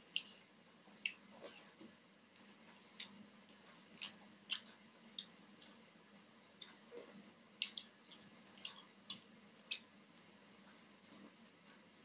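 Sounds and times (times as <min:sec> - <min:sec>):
wet finger clicks and smacks: 0:07.6 - 0:07.9.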